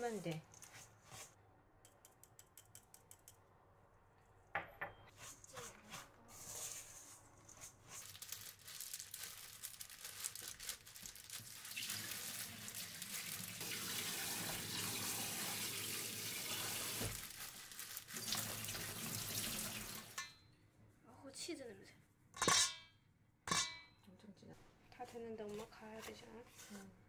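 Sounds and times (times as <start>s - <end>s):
water running from tap: 11.7s - 17.3s, 18.0s - 20.2s.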